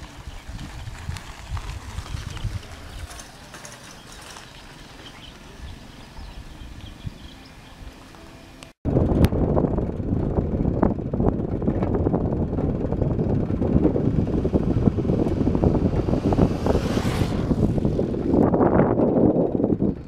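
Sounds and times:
wind buffeting microphone: 0.0s - 8.0s, 8.8s - 20.0s.

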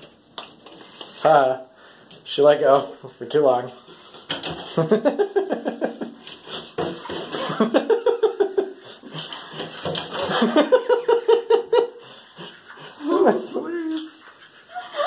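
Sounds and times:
ferret scrabbling in a bathtub: 3.2s - 14.7s
people laughing: 4.8s - 6.2s, 7.3s - 9.6s, 10.2s - 13.5s, 14.7s - 15.0s.

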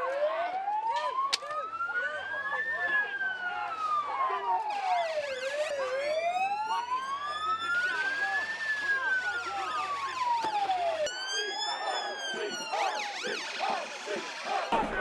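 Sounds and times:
fast sweeping siren: 0.0s - 14.8s
slow wailing siren: 0.0s - 14.8s.

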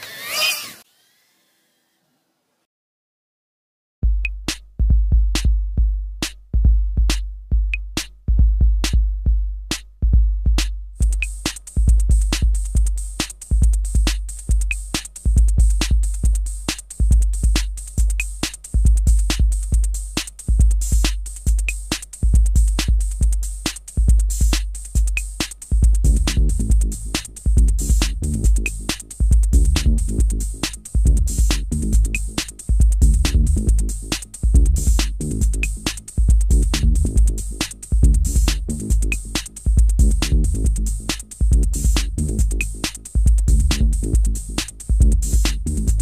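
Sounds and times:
hi-hat: 4.2s - 9.1s, 10.6s - 46.0s
electronic dance music beat: 10.6s - 46.0s.

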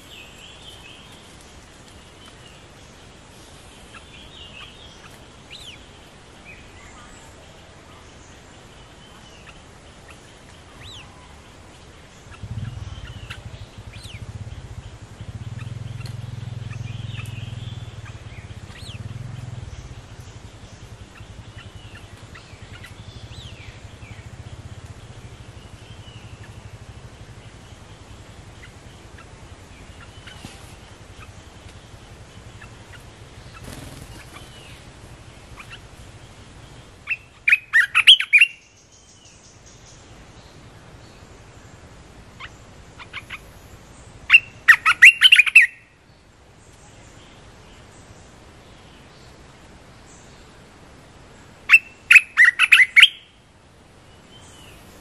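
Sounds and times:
harsh bird chattering: 12.2s - 19.9s
bird chirps and whistles: 44.3s - 45.8s, 51.7s - 53.2s.

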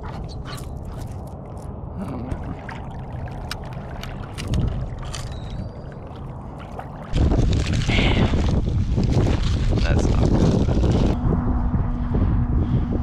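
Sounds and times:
water sloshing around legs: 0.0s - 10.4s
wind rumble on microphone: 0.0s - 13.0s
small water splashes: 0.8s - 10.9s.

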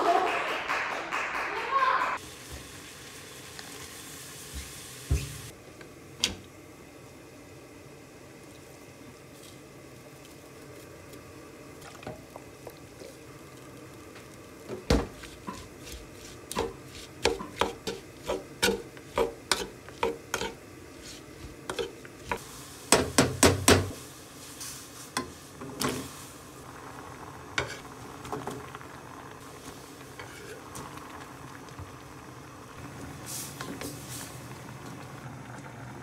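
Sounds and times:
metal spoon scraping wooden bowl: 15.2s - 22.4s.

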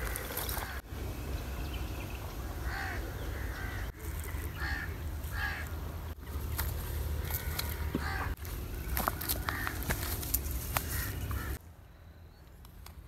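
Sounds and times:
crow cawing: 2.6s - 5.8s, 7.2s - 8.4s, 9.0s - 9.9s, 10.8s - 11.6s.

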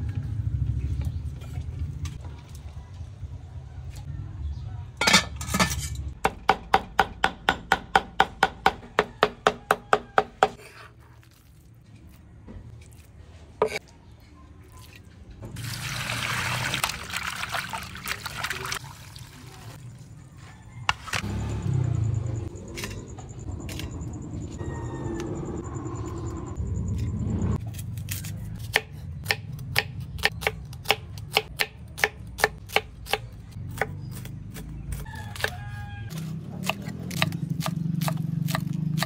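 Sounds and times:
liquid pouring: 15.6s - 19.7s.

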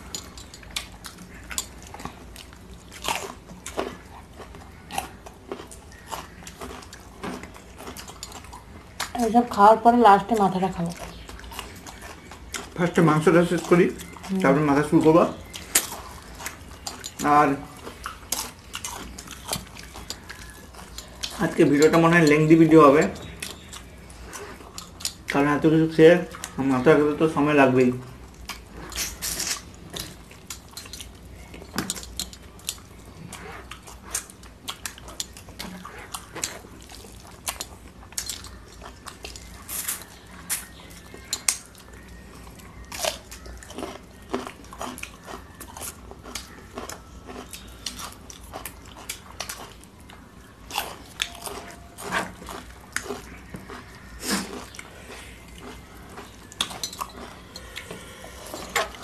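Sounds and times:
chewing and lip smacking: 0.0s - 9.6s, 10.2s - 27.4s, 28.0s - 59.0s
fingers mixing rice and curry: 0.0s - 27.6s.

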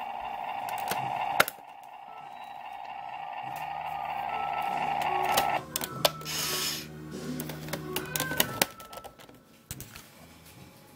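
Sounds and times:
electronic rising whine: 0.0s - 5.6s
mechanical clicks and clanks: 0.0s - 6.2s.

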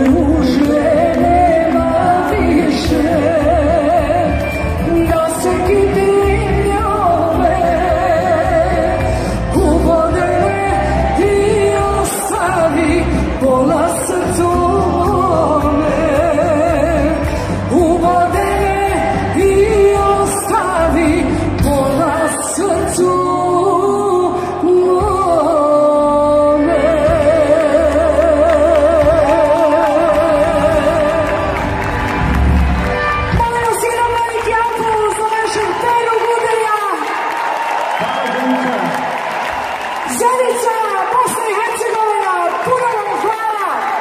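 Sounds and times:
person singing with vibrato: 0.0s - 32.0s.

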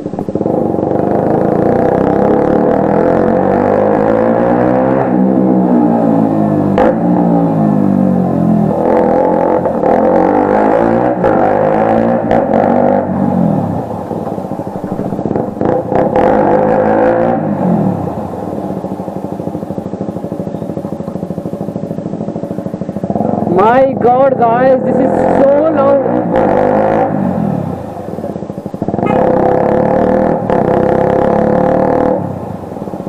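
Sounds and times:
motorcycle engine revving: 0.0s - 33.0s
exhaust cracks: 8.7s - 23.9s.

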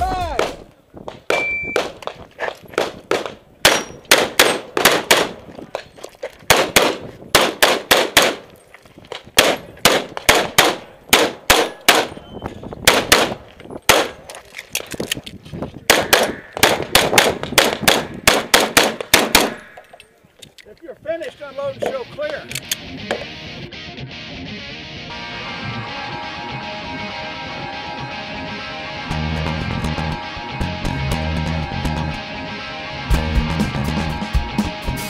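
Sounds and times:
shot timer beep: 1.3s - 1.8s
pistol shots: 1.3s - 2.1s, 2.8s - 5.4s, 6.5s - 8.5s, 9.4s - 12.2s, 12.8s - 14.3s, 15.9s - 19.8s.

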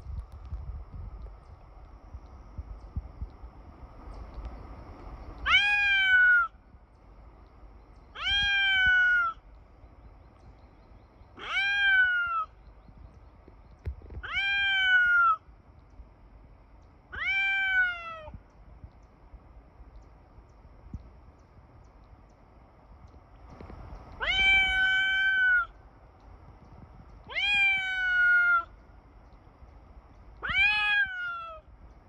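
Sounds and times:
cat meowing: 5.4s - 6.5s, 8.2s - 9.4s, 11.4s - 12.5s, 14.2s - 15.4s, 17.1s - 18.3s, 24.2s - 25.7s, 27.3s - 28.7s, 30.4s - 31.6s.

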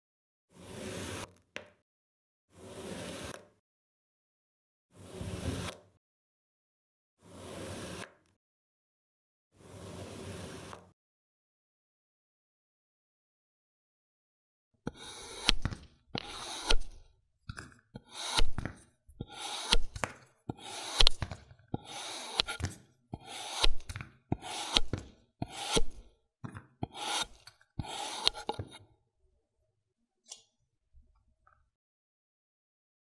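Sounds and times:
knife slicing through sand: 16.2s - 17.0s, 18.0s - 18.6s, 19.2s - 21.2s, 21.8s - 22.6s, 23.2s - 26.0s, 26.9s - 28.5s.

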